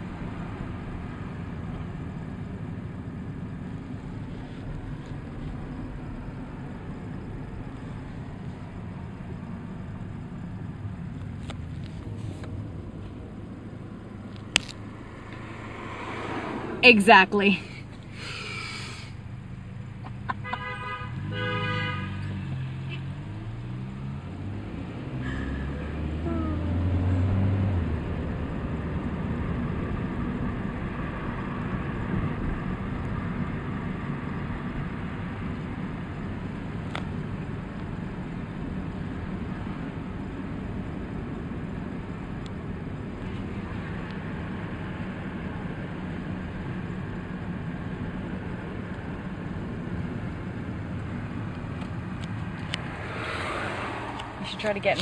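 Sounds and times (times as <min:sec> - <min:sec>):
road noise: 0:00.0 - 0:55.0
engine revving: 0:14.6 - 0:17.9, 0:20.2 - 0:32.1, 0:50.7 - 0:55.0
car horn tooting: 0:20.3 - 0:22.3.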